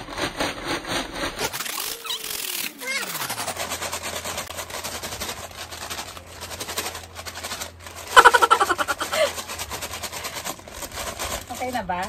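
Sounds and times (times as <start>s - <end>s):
paper bag shaken with fries: 0.0s - 12.0s
person laughing: 8.1s - 9.5s.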